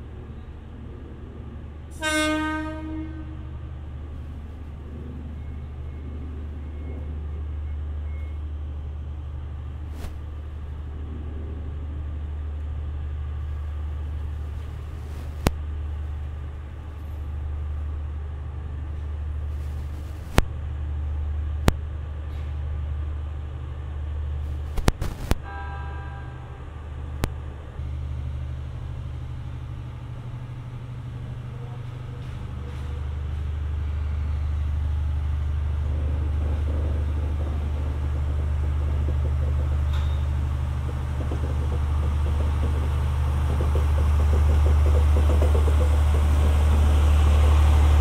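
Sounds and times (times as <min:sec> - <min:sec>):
train droning: 0:00.0 - 0:48.0
wheels clicking over rail joints: 0:34.7 - 0:48.0.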